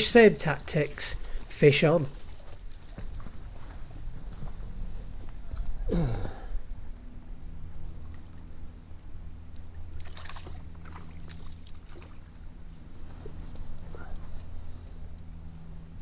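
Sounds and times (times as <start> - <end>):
fish splashing in water: 9.9 - 12.5.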